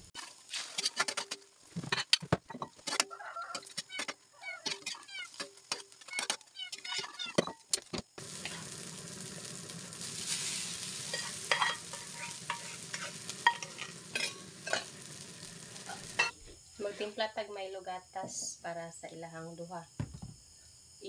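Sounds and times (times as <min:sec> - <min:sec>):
food sizzling in a wok: 0:00.0 - 0:01.9, 0:04.6 - 0:07.1, 0:08.2 - 0:16.4
metal spatula scraping wok: 0:02.8 - 0:07.2, 0:08.2 - 0:16.3.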